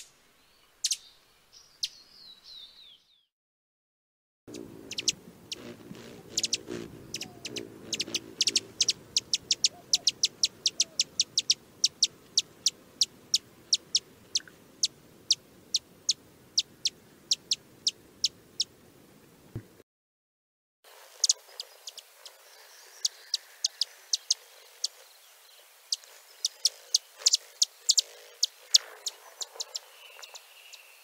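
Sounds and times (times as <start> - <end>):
hummingbird chip notes: 4.5 - 18.7.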